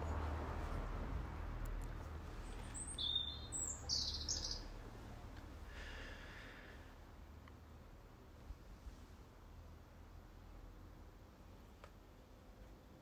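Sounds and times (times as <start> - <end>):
birds chirping: 2.3 - 4.8.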